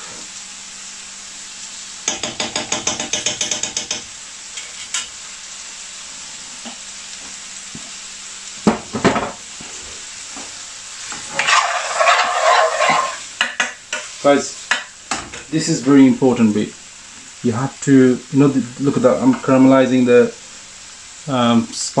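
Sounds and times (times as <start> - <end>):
food sizzling in a pan: 0.0 - 22.0
utensil tapping a pan: 2.0 - 4.1, 11.4 - 14.1, 14.7 - 15.2
spatula stirring a pan: 9.6 - 15.5.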